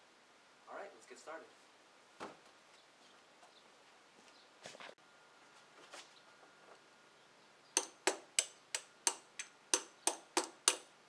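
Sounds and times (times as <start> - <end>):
wrench tapping on metal cap: 7.8 - 10.8.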